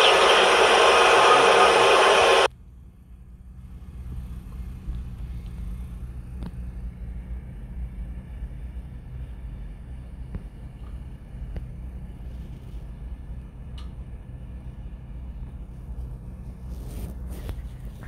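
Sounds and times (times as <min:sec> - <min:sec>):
hissing news footage noise: 0:00.0 - 0:02.5.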